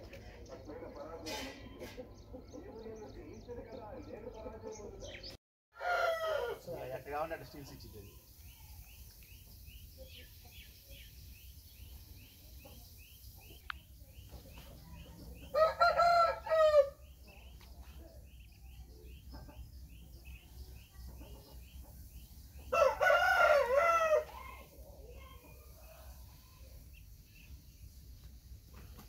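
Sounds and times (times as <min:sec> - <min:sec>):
rooster crowing: 0:05.8 - 0:06.8, 0:15.5 - 0:17.0, 0:22.6 - 0:24.7.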